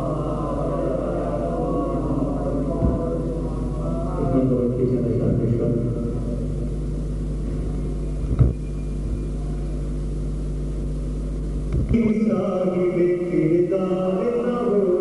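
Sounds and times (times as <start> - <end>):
man chanting: 0.0 - 6.4, 11.9 - 15.0
low electrical hum: 0.0 - 15.0.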